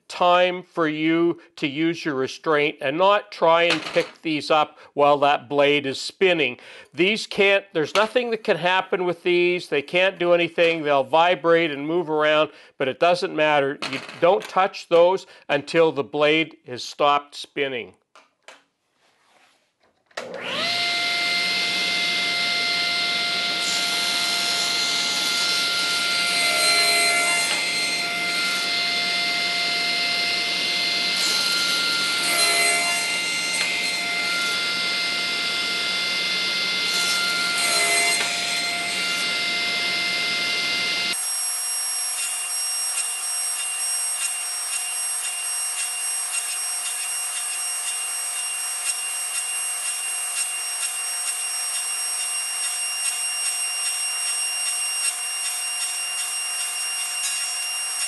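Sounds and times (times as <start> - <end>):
saw blade cutting wood: 20.2 - 58.0
table saw whining: 20.2 - 58.0.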